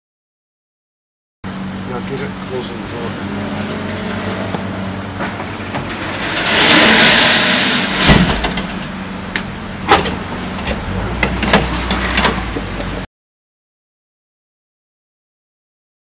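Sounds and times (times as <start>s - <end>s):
loud rush of noise: 1.5s - 13.0s
trailer door shutting with thump: 8.0s - 8.8s, 9.8s - 12.4s.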